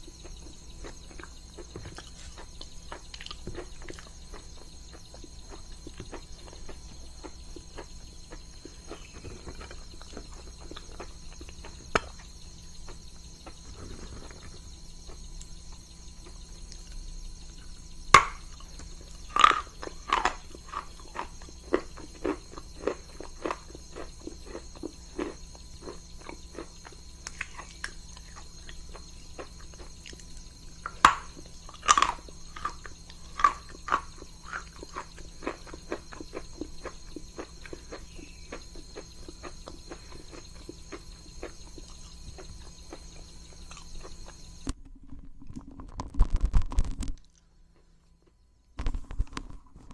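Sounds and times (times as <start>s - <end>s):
crunchy chewing: 0.0s - 49.9s
crunching bites: 18.1s - 44.8s.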